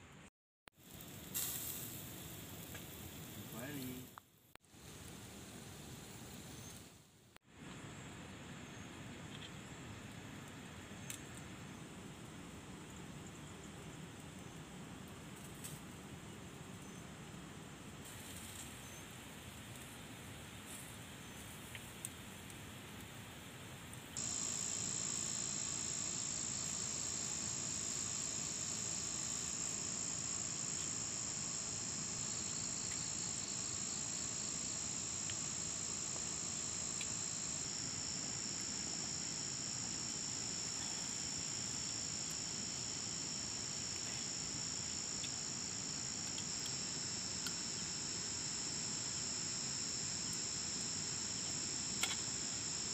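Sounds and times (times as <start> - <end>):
outdoor background: 0.0 - 52.9
high-pitched insect chorus: 24.2 - 52.9.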